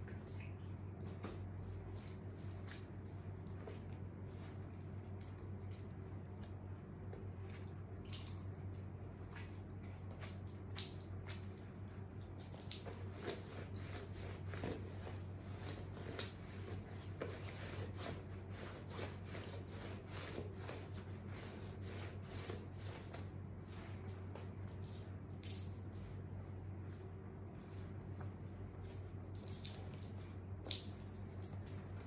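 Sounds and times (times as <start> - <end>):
wet fabric squishing: 0.0 - 6.7, 27.1 - 32.0
water dripping onto floor: 4.6 - 13.4, 25.3 - 26.0, 27.5 - 32.0.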